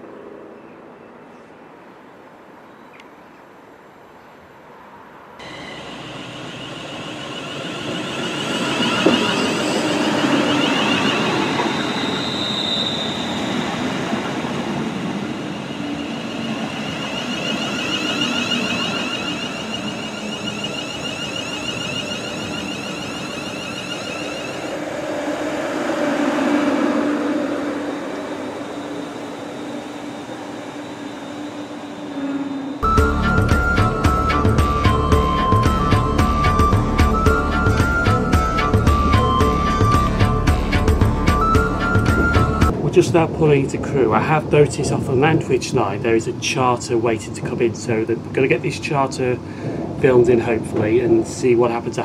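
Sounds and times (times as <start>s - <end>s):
electric train passing with high whine: 0.0s - 52.0s.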